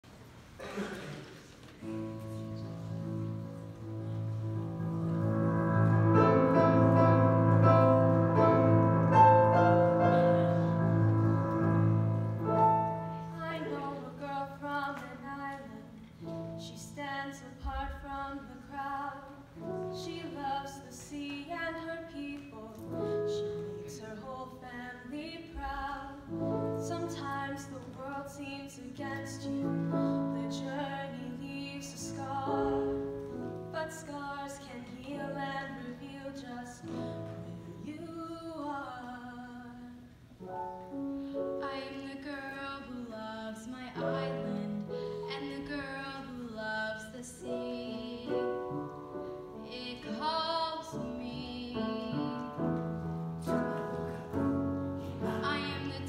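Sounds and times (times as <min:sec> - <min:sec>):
digital piano accompaniment: 0:01.8 - 0:24.9, 0:40.3 - 0:56.0.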